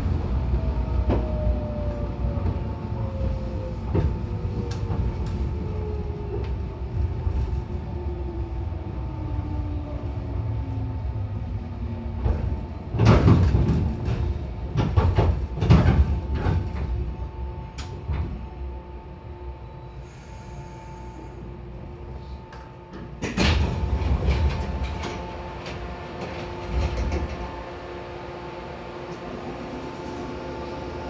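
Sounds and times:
train wheels rumbling: 0.0s - 20.2s, 22.4s - 31.0s
train motor whine: 16.3s - 31.0s.

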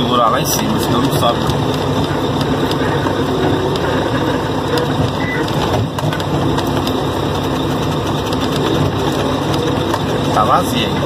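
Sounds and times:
cab rattles and clicks: 0.0s - 11.0s
truck diesel engine running: 0.0s - 11.0s.

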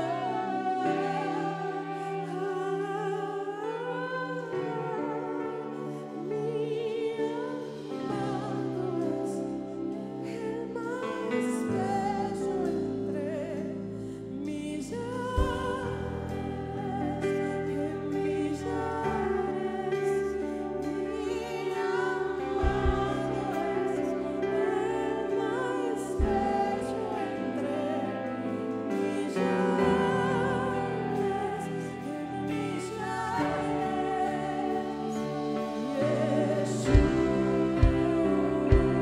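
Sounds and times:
woman singing with vibrato: 0.0s - 39.0s
live band accompaniment: 15.0s - 39.0s.

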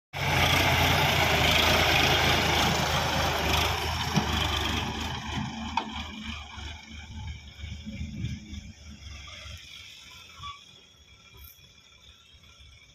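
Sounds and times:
tractor diesel engine running: 0.1s - 12.9s.

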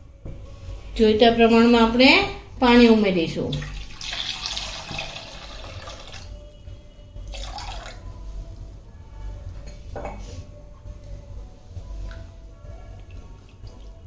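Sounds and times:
water pouring into a pan: 3.6s - 6.4s, 7.3s - 8.0s.

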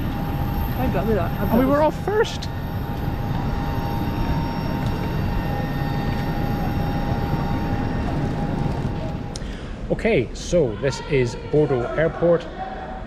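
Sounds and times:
jet turbine running: 0.0s - 9.9s.

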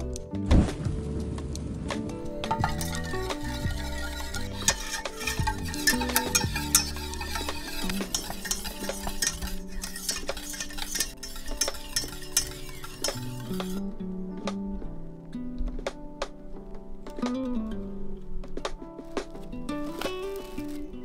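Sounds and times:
light guitar music: 0.0s - 21.0s
whisk scraping a saucepan: 2.4s - 13.8s.

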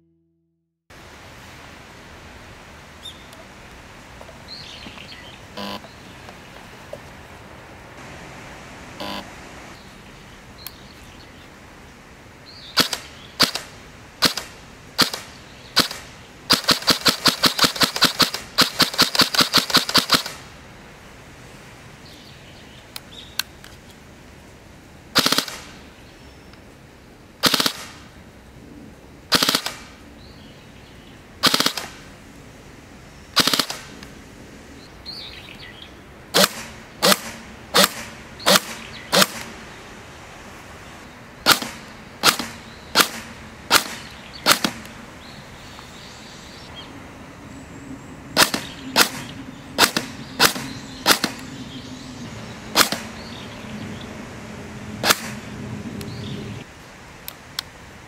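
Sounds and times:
airsoft gun firing sharp cracks: 12.8s - 20.5s, 25.2s - 25.8s, 27.4s - 28.1s, 29.3s - 30.0s, 31.4s - 32.1s, 33.4s - 33.9s, 36.3s - 39.6s, 41.4s - 45.0s, 48.4s - 51.5s, 52.7s - 53.2s, 55.0s - 55.4s.

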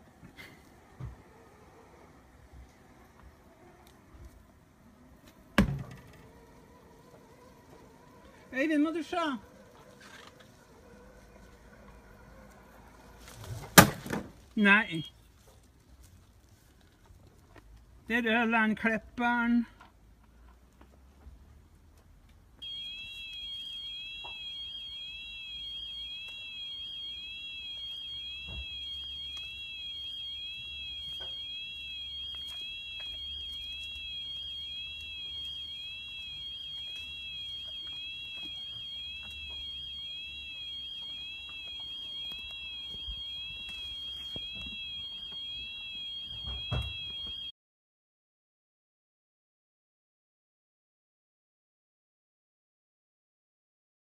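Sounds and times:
warbling electronic alarm tone: 22.6s - 47.5s.

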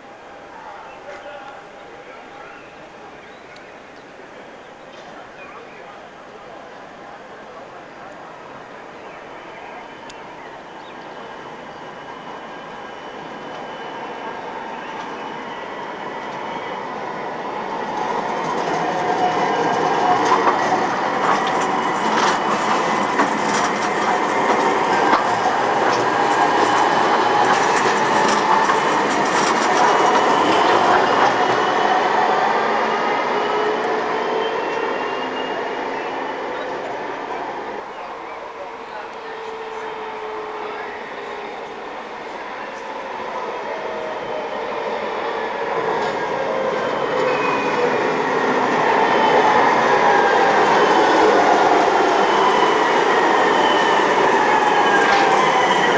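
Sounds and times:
tram rolling past: 1.0s - 55.9s
wheels clicking on rails: 18.0s - 31.6s.

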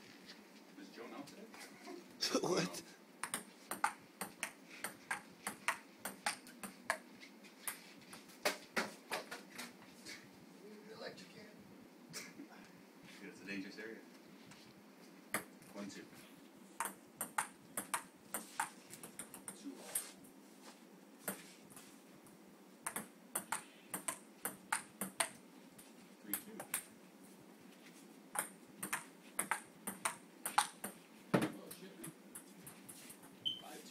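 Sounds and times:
ping-pong ball clicking off paddles: 3.2s - 7.0s, 16.8s - 19.6s, 22.8s - 25.4s, 28.4s - 31.0s.

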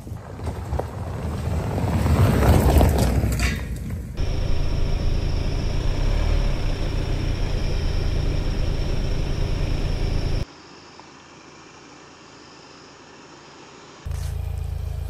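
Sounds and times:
suv engine rumbling: 4.2s - 10.4s, 14.1s - 15.0s.

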